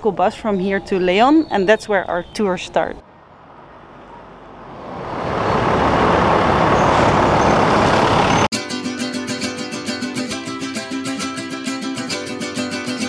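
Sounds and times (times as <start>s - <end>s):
bus passing by: 3.0s - 8.5s
guitar music: 8.5s - 13.0s.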